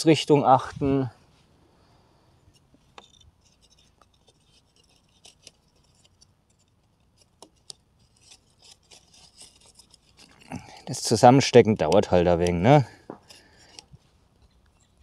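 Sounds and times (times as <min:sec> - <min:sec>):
dry sticks clicking and scraping: 0:02.4 - 0:15.0.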